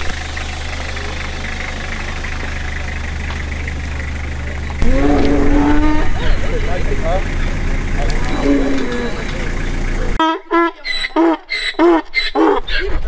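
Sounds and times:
truck engine idling: 0:00.0 - 0:13.0
voice holding long note: 0:04.8 - 0:06.4.

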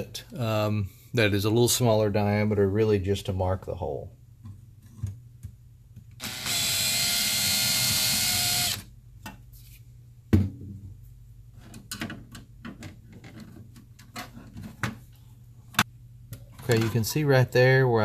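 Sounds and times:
cordless drill drilling into metal: 0:06.2 - 0:08.9.

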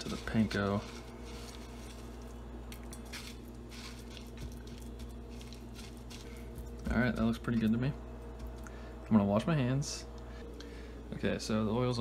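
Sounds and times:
breadcrumbs crunching and rustling: 0:00.0 - 0:07.7
steady low hum: 0:00.0 - 0:12.0.

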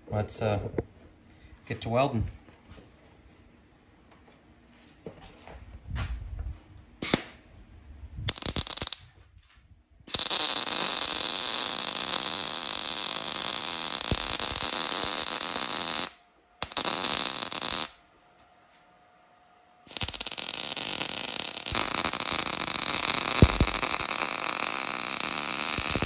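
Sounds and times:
welder arc sizzling and crackling: 0:08.3 - 0:09.0, 0:10.1 - 0:18.0, 0:19.9 - 0:26.0.

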